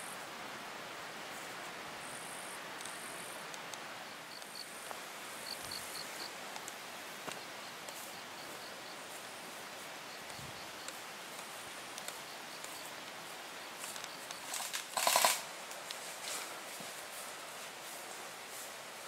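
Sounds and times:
crickets chirping: 0:00.0 - 0:19.0
steady hiss: 0:00.0 - 0:19.0
faint sharp clicks: 0:02.8 - 0:05.0, 0:06.5 - 0:08.0, 0:10.2 - 0:13.2.

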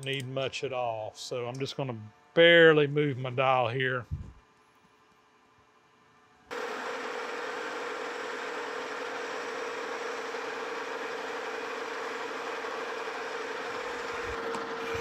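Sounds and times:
metal lathe whining: 0:06.5 - 0:15.0.

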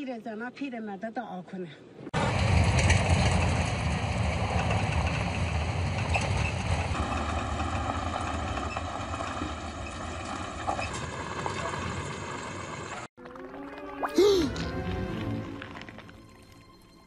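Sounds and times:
vehicle engine rumbling: 0:02.2 - 0:13.1.

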